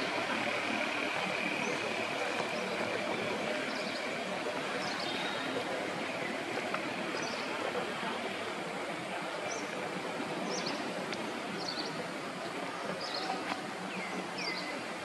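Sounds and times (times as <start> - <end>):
steady outdoor rush: 0.0 - 15.0.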